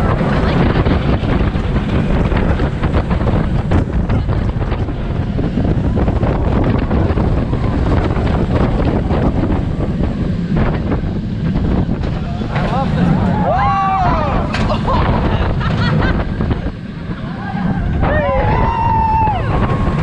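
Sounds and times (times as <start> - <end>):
roller coaster rumbling on track: 0.0 - 20.0
wind buffeting microphone: 0.0 - 20.0.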